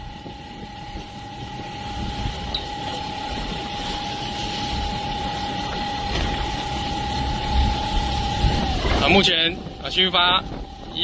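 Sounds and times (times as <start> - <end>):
boat engines running: 0.0 - 11.0
pumps whining: 0.0 - 11.0
water jets spraying: 0.0 - 11.0.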